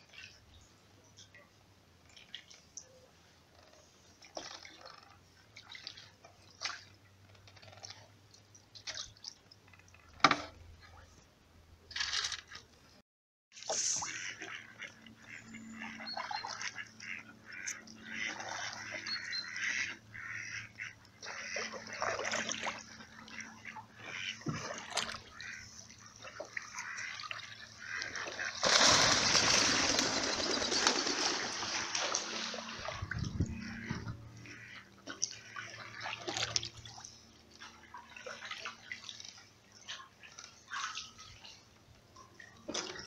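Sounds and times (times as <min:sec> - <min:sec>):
paddle strokes splashing water: 0:02.1 - 0:11.0, 0:13.5 - 0:43.0
ducks quacking: 0:13.8 - 0:36.6.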